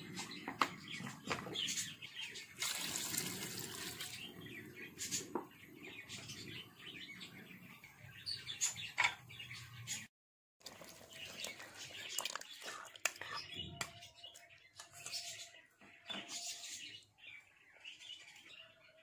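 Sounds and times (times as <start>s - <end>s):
liquid sloshing and bubbling: 10.6s - 13.4s.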